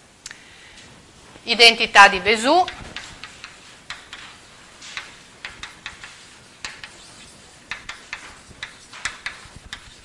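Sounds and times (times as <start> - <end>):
chalk writing on blackboard: 3.0 - 10.0.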